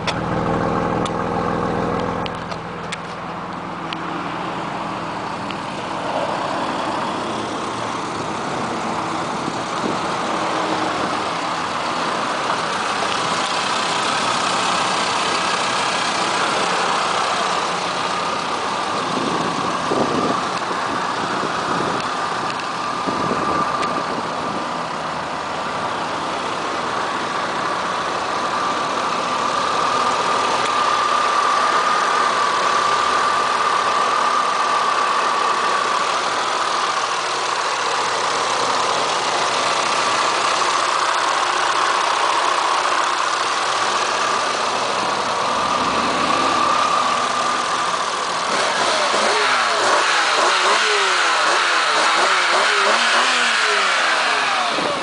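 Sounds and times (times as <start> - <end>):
car engine idling: 0.0 - 55.0
high whine: 43.1 - 49.8.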